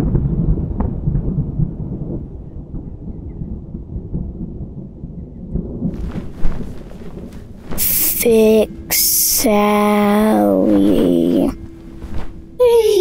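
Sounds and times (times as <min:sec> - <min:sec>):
rolling thunder rumble: 0:00.0 - 0:12.6.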